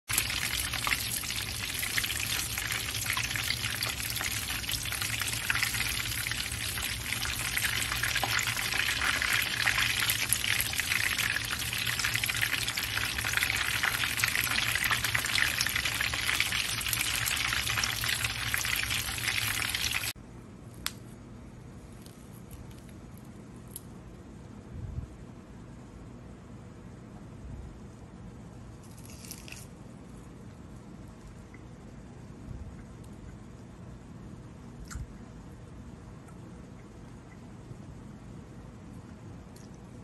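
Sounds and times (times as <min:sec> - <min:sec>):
food deep-frying in hot oil: 0:00.1 - 0:20.2.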